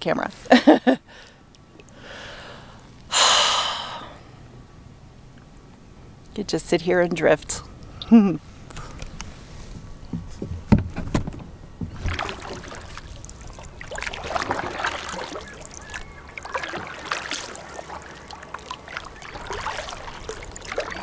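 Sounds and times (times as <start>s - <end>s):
paddle splashing in water: 11.8s - 21.0s.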